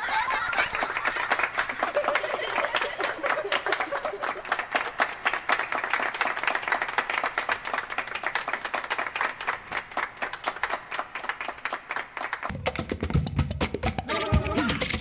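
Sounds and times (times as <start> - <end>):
upbeat music: 0.0 - 1.3, 12.5 - 15.0
hands clapping: 0.2 - 15.0.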